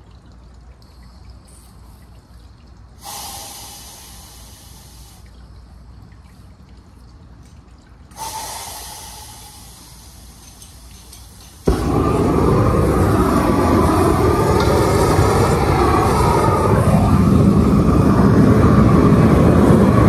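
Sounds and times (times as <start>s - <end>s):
propane torch hissing: 3.0s - 5.2s, 8.2s - 20.0s.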